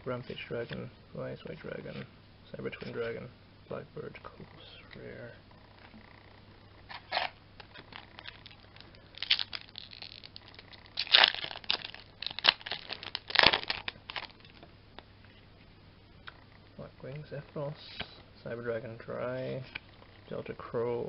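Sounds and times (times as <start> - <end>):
foil wrapper crinkling and tearing: 6.9 - 14.6.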